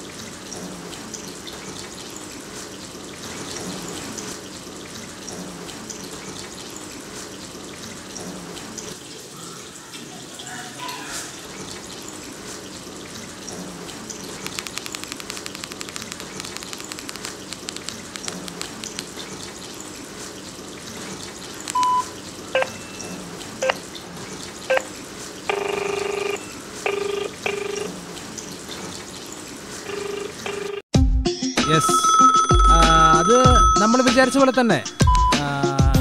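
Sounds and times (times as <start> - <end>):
faint rapid clicking: 14.1 - 19.2
steady hiss: 14.3 - 20.3
phone keypad beeps: 21.7 - 23.0, 31.6 - 35.4
ringback tone: 31.6 - 35.4.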